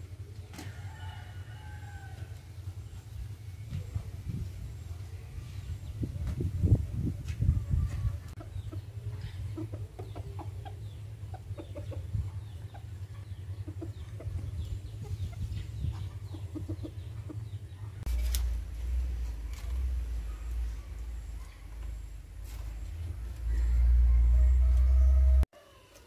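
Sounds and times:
chickens clucking: 0:02.6 - 0:26.0
low rumble: 0:10.6 - 0:25.5.

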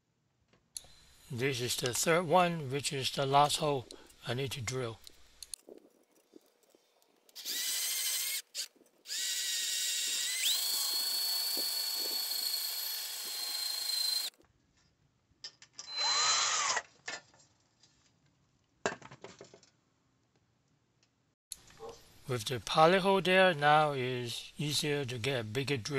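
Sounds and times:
cordless drill drilling metal: 0:07.4 - 0:14.4, 0:15.9 - 0:16.9.

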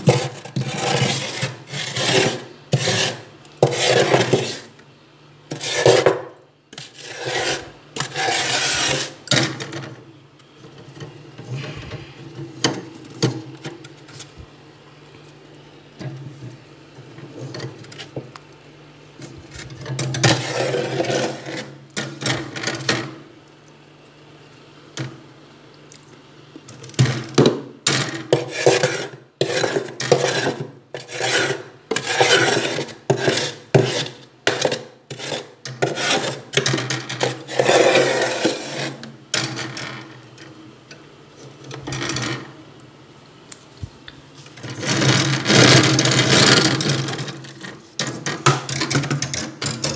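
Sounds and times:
frost scraping in a freezer: 0:00.0 - 0:04.8, 0:05.5 - 0:09.7, 0:19.2 - 0:22.9, 0:28.2 - 0:39.1, 0:44.4 - 0:49.9.

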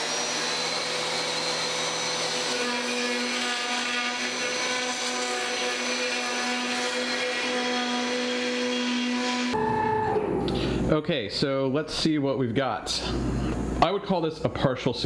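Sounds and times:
shop vacuum running: 0:00.0 - 0:11.0.

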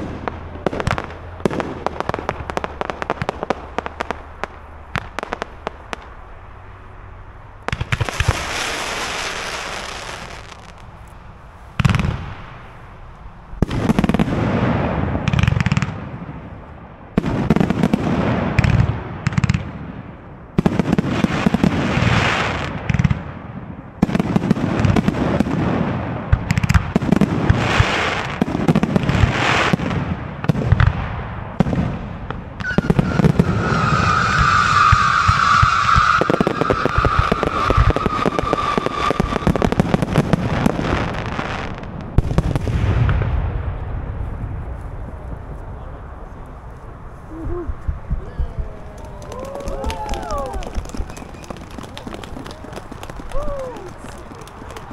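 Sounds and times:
firework hissing and crackling: 0:07.7 - 0:14.8, 0:32.6 - 0:42.8
steady high whistle: 0:32.6 - 0:39.8
firework shells bursting: 0:32.6 - 0:42.8, 0:49.3 - 0:54.9.

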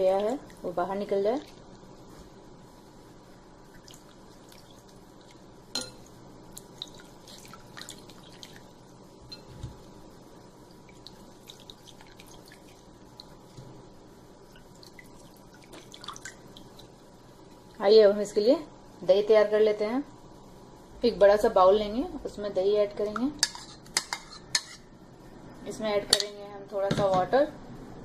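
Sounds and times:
water dripping and splashing: 0:03.7 - 0:05.4, 0:06.5 - 0:08.8, 0:10.6 - 0:13.6, 0:14.4 - 0:17.0.

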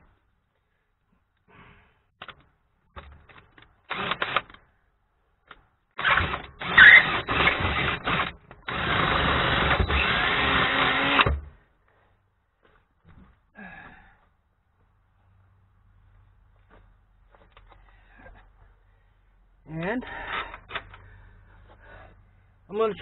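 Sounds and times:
cordless drill boring into steel: 0:06.0 - 0:11.4.

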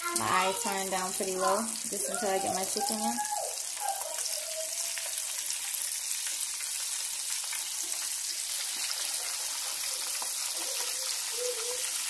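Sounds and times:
chicken deep-frying in oil: 0:00.0 - 0:12.0.

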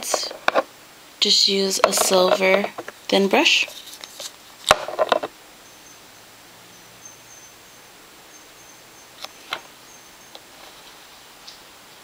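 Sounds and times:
steady low hiss: 0:00.0 - 0:12.0
faint high whine: 0:05.4 - 0:12.0.

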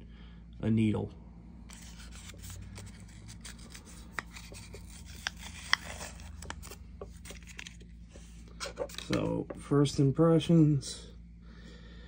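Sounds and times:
packaging rustling: 0:01.7 - 0:09.2.

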